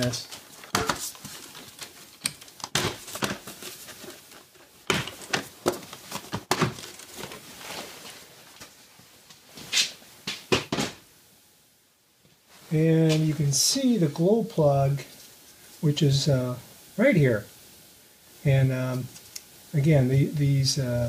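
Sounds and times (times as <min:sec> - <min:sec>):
plastic rustling: 0:00.0 - 0:08.9
plastic cover knocks and snaps: 0:00.6 - 0:03.7, 0:04.8 - 0:07.4.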